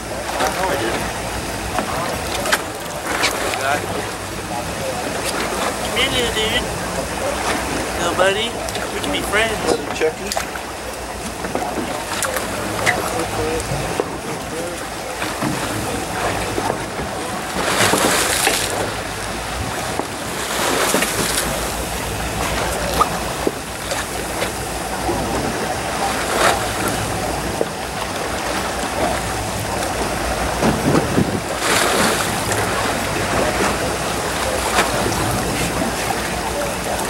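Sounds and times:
boat engine rumble: 0:00.0 - 0:37.0
water washing against hull: 0:00.0 - 0:37.0
wind on microphone: 0:15.4 - 0:37.0.

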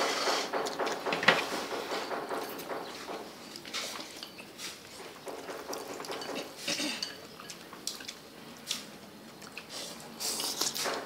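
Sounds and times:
chopsticks clinking in ceramic bowls: 0:05.7 - 0:08.2.

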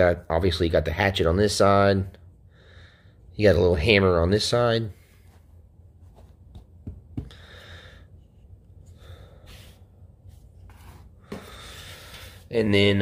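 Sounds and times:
soft breaths: 0:02.4 - 0:03.3, 0:07.2 - 0:12.6.

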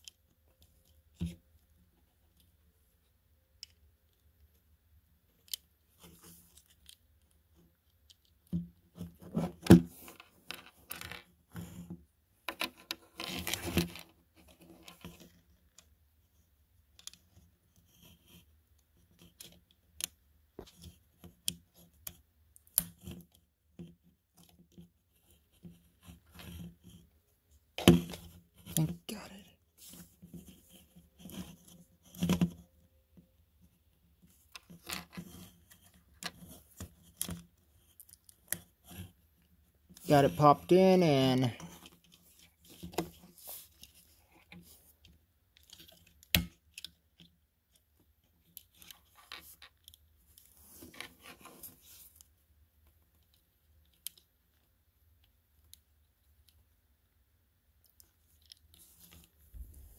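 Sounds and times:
plastic toy parts clicking and scraping: 0:48.3 - 0:52.3, 0:57.8 - 0:59.3.

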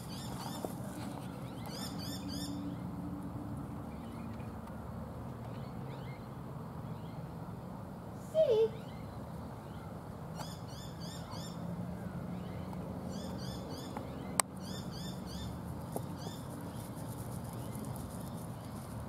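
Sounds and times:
small bird chirping: 0:00.0 - 0:02.9, 0:12.4 - 0:19.0.

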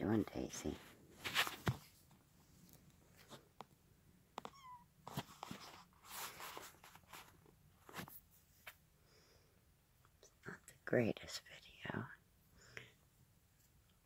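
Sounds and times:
rustling and handling noises: 0:00.3 - 0:08.9
kitten mewing: 0:04.4 - 0:04.8.

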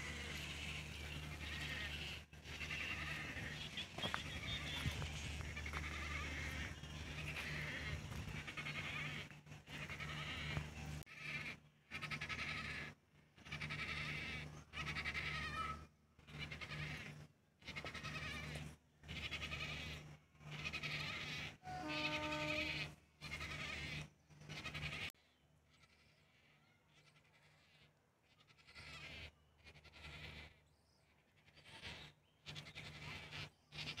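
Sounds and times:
clear pitched bird call: 0:00.0 - 0:11.5, 0:20.6 - 0:25.1
wading birds harsh cries: 0:00.0 - 0:34.0.

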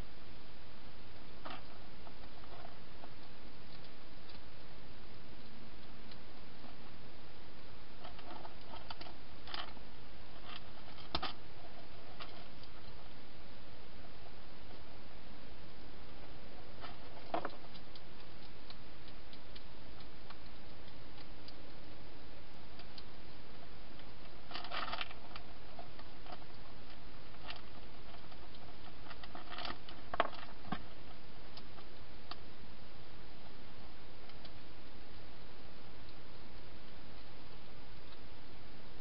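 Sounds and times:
steady hiss: 0:00.0 - 0:39.0
hedgehog crunching food: 0:22.8 - 0:31.7.

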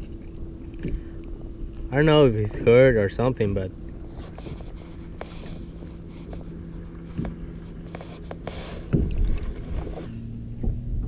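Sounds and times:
low hum: 0:00.0 - 0:11.0
water splashing: 0:08.5 - 0:10.1.

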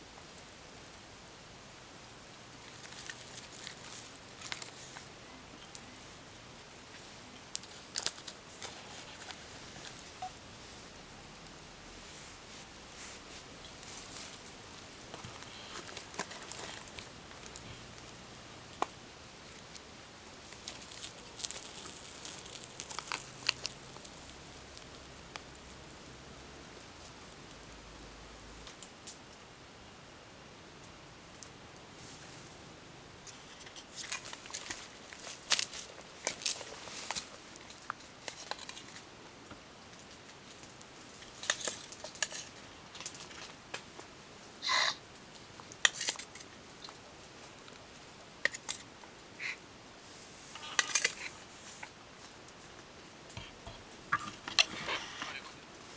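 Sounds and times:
rustling in dry leaves: 0:20.5 - 0:25.1.

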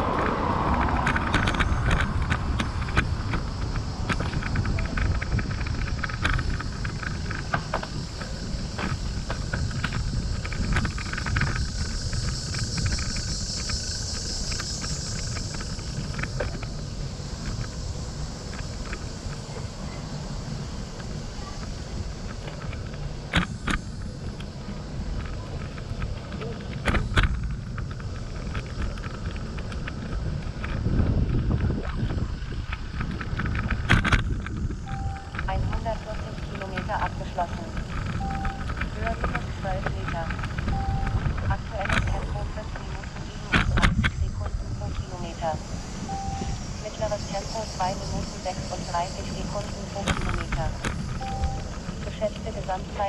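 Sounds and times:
road noise: 0:00.0 - 0:53.0
wind rumbling on microphone: 0:00.0 - 0:53.0
high-pitched insect buzz: 0:02.8 - 0:22.6, 0:34.4 - 0:37.0, 0:45.1 - 0:52.6.

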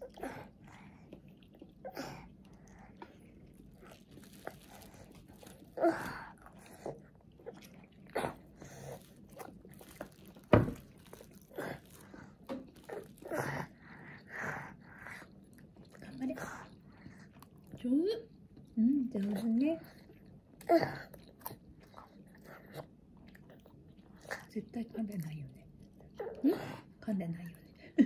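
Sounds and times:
chewing and mouth sounds: 0:00.0 - 0:26.4.

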